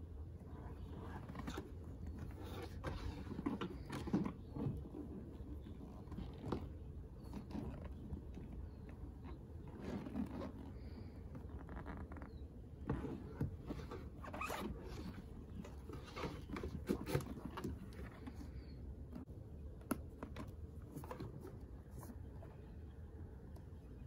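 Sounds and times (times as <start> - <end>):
leather rubbing and scuffing: 0.5 - 18.7.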